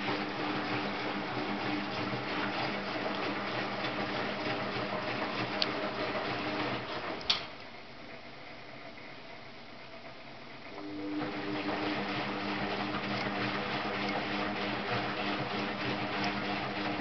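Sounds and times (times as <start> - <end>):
water tumbling in drum: 0.0 - 7.3, 11.2 - 17.0
washing machine motor hum: 0.0 - 17.0.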